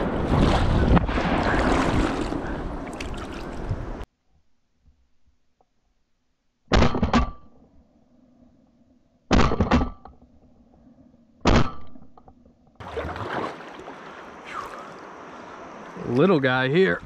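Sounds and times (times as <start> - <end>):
water washing around a kayak: 0.0 - 4.0, 12.8 - 16.5.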